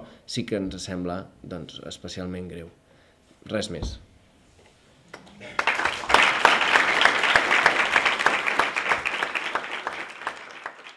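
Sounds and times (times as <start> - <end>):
audience applauding: 5.2 - 10.9.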